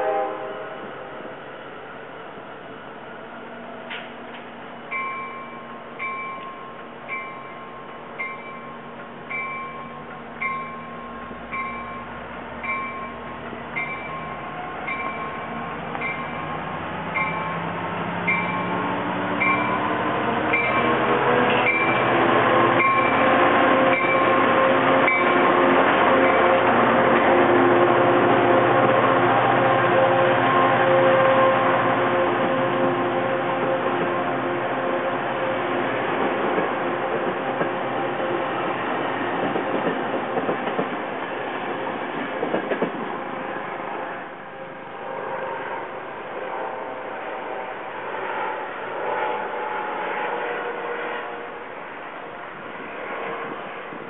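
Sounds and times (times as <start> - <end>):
passenger train rumbling past: 0.0 - 54.0
bell ringing: 4.9 - 16.6, 17.2 - 17.6, 18.3 - 18.8, 19.4 - 21.0, 22.8 - 23.2.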